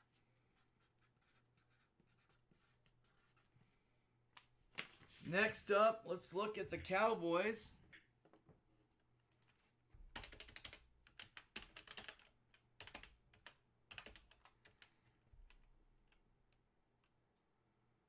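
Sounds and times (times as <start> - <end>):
typing on computer keyboard: 10.1 - 16.2.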